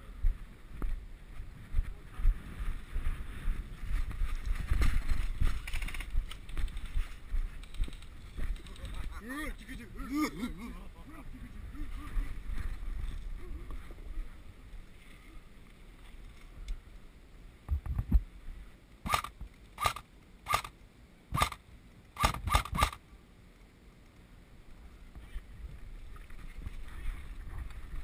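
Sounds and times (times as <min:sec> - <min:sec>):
airsoft rifle shots: 0:19.0 - 0:20.7, 0:21.3 - 0:21.6, 0:22.2 - 0:23.0.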